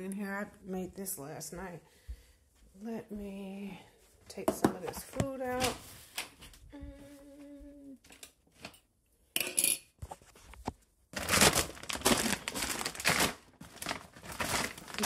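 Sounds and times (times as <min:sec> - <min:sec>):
woman humming: 0:06.7 - 0:08.1
plastic bag crinkling: 0:11.2 - 0:15.0.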